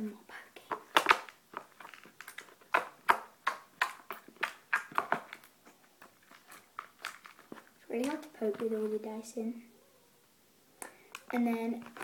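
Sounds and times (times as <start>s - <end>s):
slime popping and clicking: 2.2s - 5.5s.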